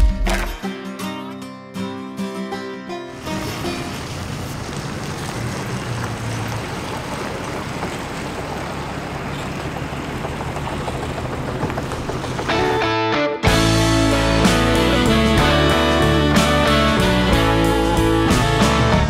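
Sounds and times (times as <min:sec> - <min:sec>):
music: 0:00.0 - 0:04.0, 0:12.5 - 0:19.0
car engine idling: 0:03.2 - 0:18.8.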